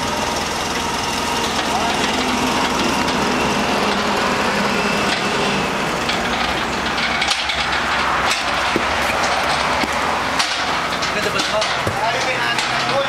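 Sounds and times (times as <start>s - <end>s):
engine idling: 0.0s - 13.0s
sharp knocks: 6.9s - 13.0s.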